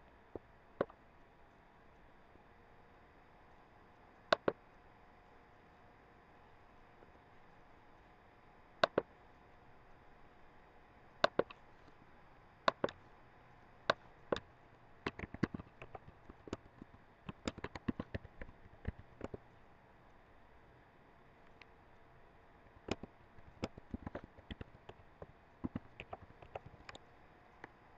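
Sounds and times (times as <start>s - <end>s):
computer mouse clicking: 4.3s - 4.6s, 8.8s - 9.1s, 11.2s - 11.6s, 12.7s - 13.0s, 13.9s - 19.4s, 22.8s - 27.0s
computer keyboard typing: 8.8s - 9.0s, 11.2s - 11.5s, 12.7s - 13.0s, 15.1s - 19.4s, 22.8s - 27.0s.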